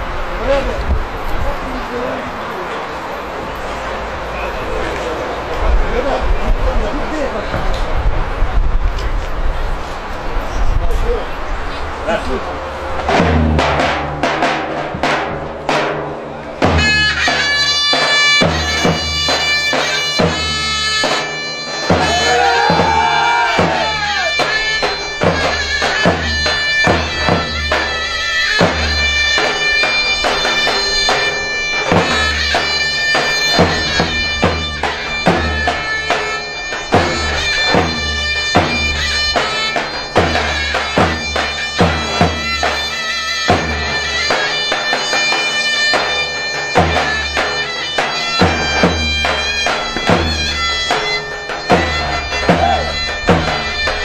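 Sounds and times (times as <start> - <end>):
davul drum strokes: 10.9 - 54.0
zurna playing reedy melody: 11.4 - 54.0.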